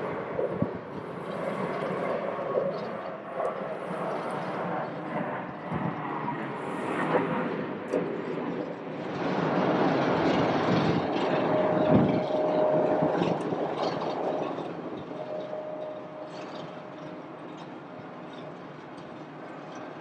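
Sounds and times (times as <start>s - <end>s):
jet engine noise: 0.0s - 20.0s
thin steady whine: 11.2s - 20.0s.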